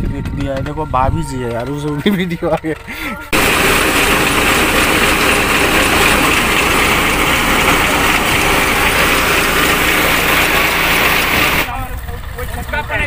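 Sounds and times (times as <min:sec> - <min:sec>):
tractor engine: 0:02.1 - 0:13.0
threshing machine din: 0:03.3 - 0:11.8.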